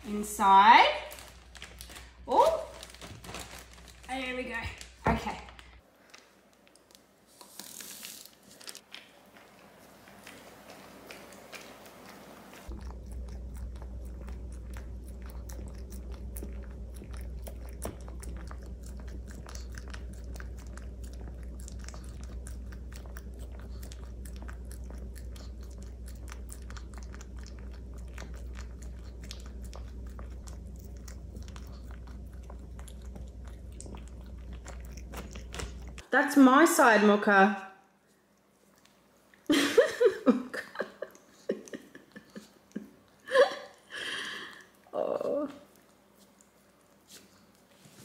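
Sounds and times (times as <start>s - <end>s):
dog licking plastic bag: 1.0s - 12.8s
steady low hum: 9.2s - 48.0s.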